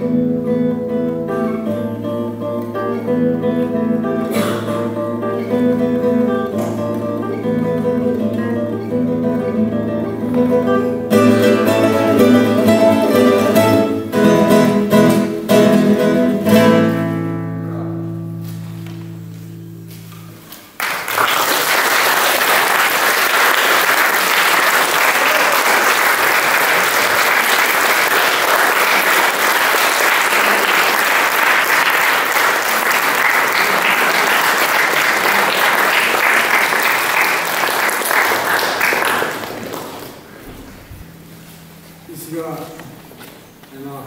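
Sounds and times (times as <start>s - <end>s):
classical guitar chord ringing: 0.0s - 20.4s
audience applauding: 20.7s - 40.4s.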